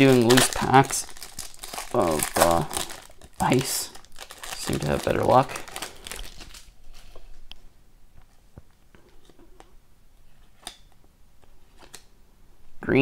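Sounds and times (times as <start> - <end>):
cards rustling: 0.0 - 7.4.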